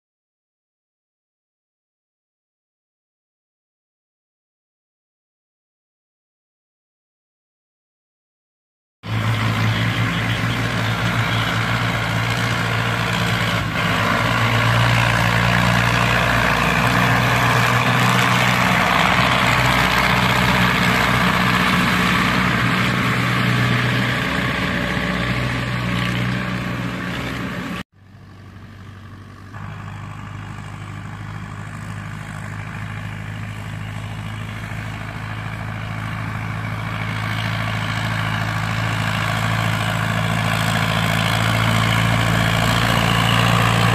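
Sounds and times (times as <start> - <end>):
tractor diesel engine running: 9.1 - 43.9.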